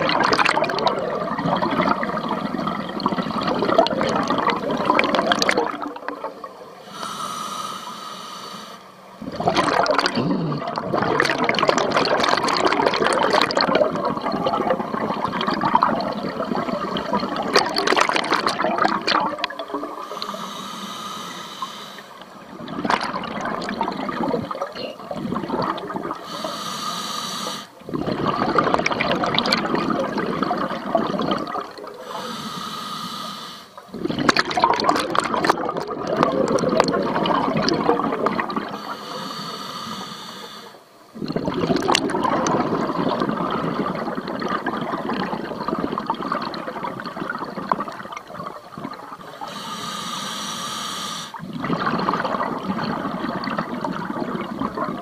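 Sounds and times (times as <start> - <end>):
exhaled bubbles underwater: 0.0 - 7.2, 9.0 - 32.6, 33.7 - 50.4, 51.1 - 55.0
hissing regulator inhalations: 6.8 - 9.0, 19.8 - 22.4, 26.1 - 27.8, 31.9 - 33.8, 38.5 - 41.0, 49.3 - 51.4.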